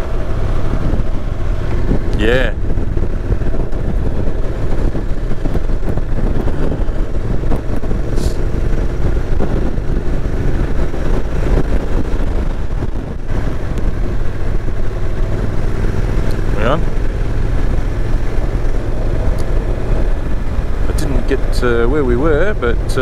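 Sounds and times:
motorcycle engine running: 0:00.0 - 0:23.0
road noise: 0:00.0 - 0:23.0
wind noise: 0:00.0 - 0:23.0.

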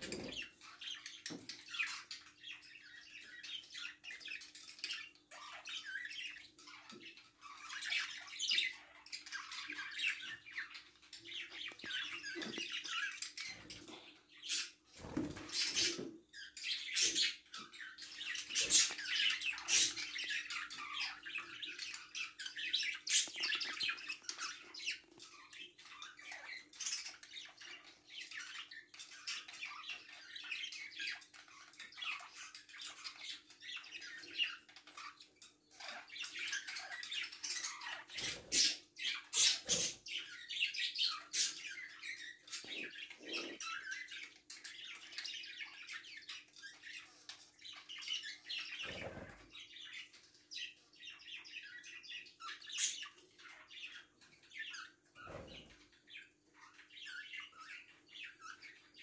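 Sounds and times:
budgerigars chattering: 0:15.4 - 0:59.0.

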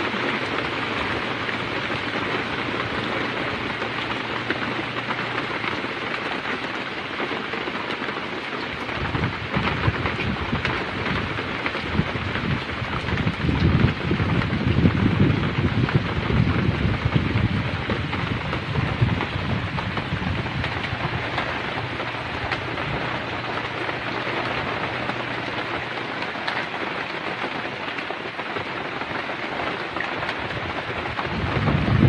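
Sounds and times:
heavy rain pouring: 0:00.0 - 0:32.0
low rumble: 0:12.4 - 0:26.0.

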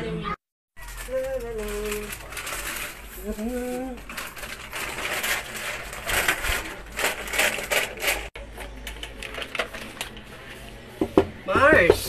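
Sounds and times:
plastic strips crinkling: 0:00.8 - 0:10.3.

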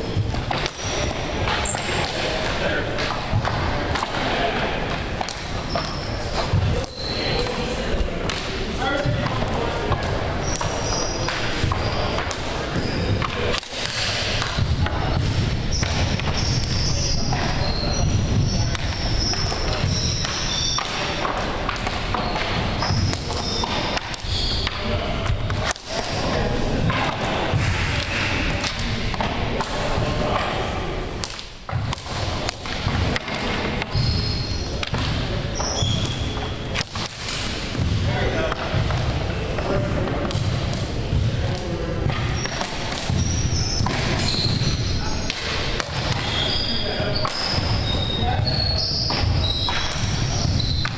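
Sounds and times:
hockey sticks and shots thudding: 0:00.0 - 0:50.9
voices murmuring: 0:00.0 - 0:50.9.

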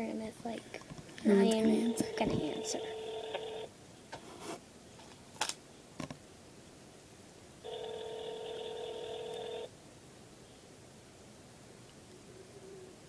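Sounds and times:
phone ringback tone: 0:01.8 - 0:03.7, 0:07.6 - 0:09.7.

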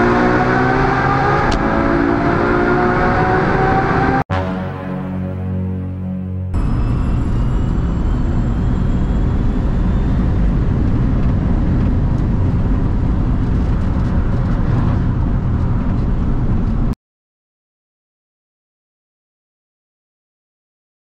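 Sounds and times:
loud rushing noise: 0:06.5 - 0:16.8.

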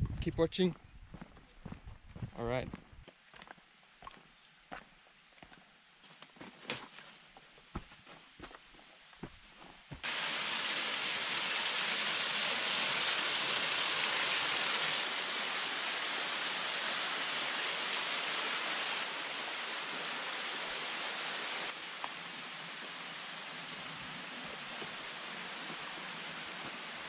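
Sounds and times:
waterfall pouring into pool: 0:10.0 - 0:27.0.

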